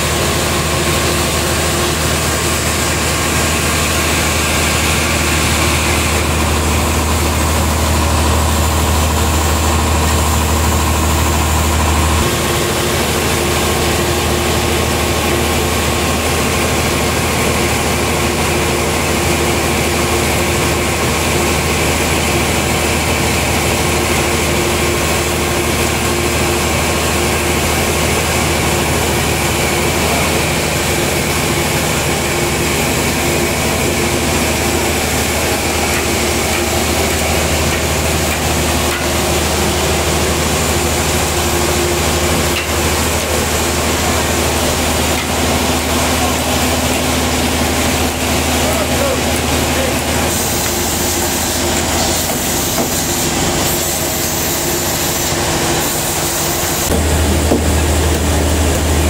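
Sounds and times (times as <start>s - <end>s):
sawmill machinery engine drone: 0.0s - 59.0s.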